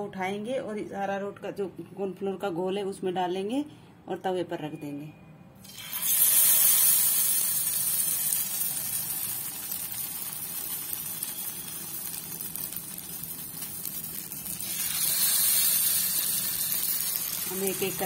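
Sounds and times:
hot oil sizzling: 5.6 - 18.0.

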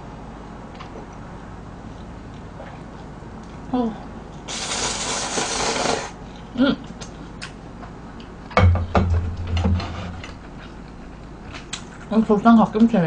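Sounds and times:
noodles slurped: 4.5 - 6.2
chewing with wet mouth clicks: 6.3 - 8.6, 10.5 - 12.1
low hum: 7.1 - 11.7.

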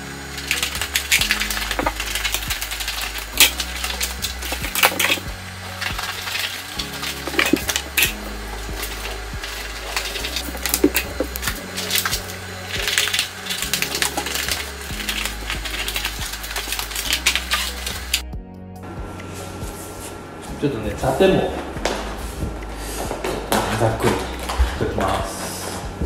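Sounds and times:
background music with bass line: 0.0 - 26.0
plastic film snips and crinkles: 0.2 - 18.2.

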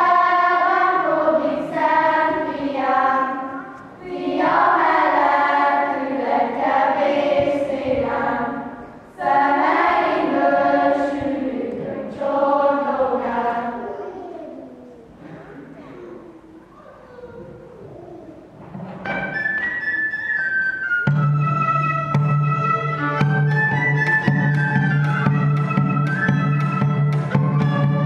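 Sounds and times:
choir singing: 0.0 - 14.0.

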